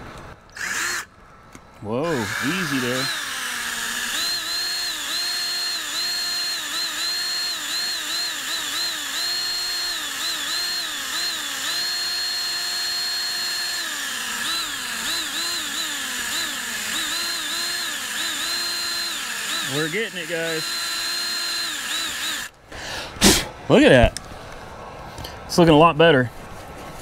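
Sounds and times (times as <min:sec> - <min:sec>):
electric drill motor whining: 0:00.6 - 0:01.1, 0:02.0 - 0:22.5.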